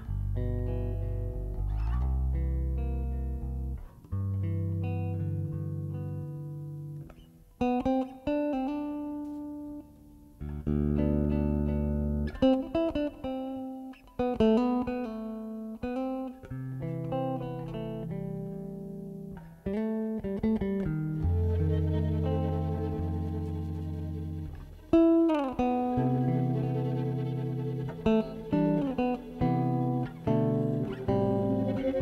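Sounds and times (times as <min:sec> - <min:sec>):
held low bass notes: 0:00.0 - 0:06.3, 0:21.2 - 0:32.0.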